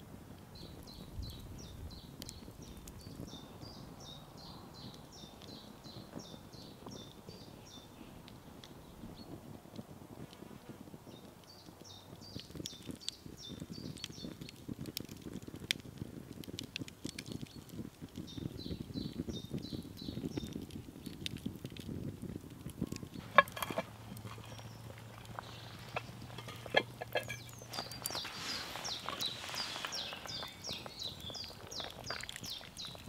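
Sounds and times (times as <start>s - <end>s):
campfire crackling: 0.0s - 33.0s
bird singing: 23.1s - 33.0s.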